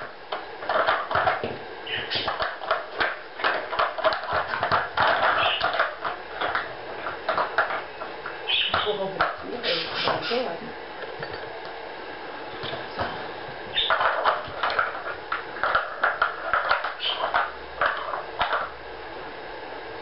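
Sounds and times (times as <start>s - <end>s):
plastic blocks clicking and clattering: 0.0s - 7.9s, 13.8s - 18.7s.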